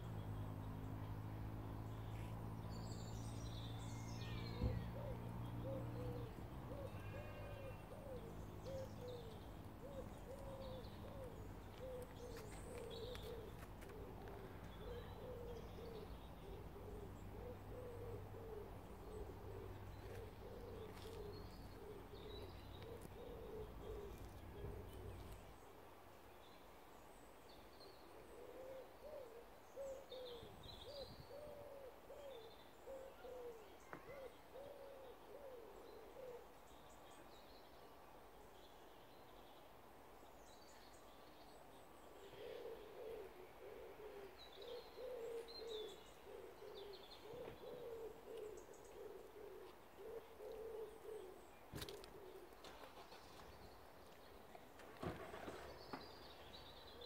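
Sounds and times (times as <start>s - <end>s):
pigeons cooing: 4.2s - 25.5s, 28.1s - 36.6s, 42.2s - 53.6s.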